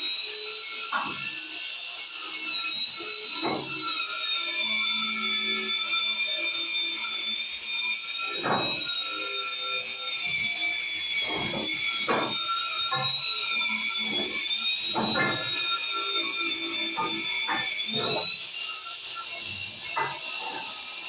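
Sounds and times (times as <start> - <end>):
angle grinder motor whining: 0.0 - 21.0.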